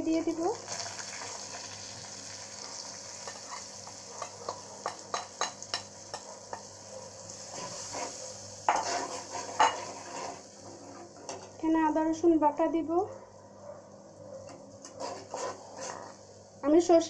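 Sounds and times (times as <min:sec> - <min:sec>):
oil and onions sizzling: 0:00.0 - 0:13.0, 0:14.7 - 0:17.0
spatula scraping a pan: 0:07.4 - 0:11.5, 0:14.8 - 0:16.2.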